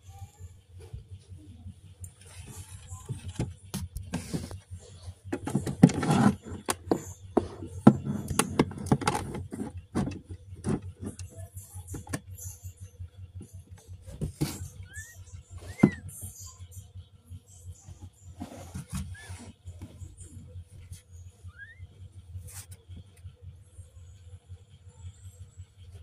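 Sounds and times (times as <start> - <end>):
handling plastic toy case: 5.3 - 11.3.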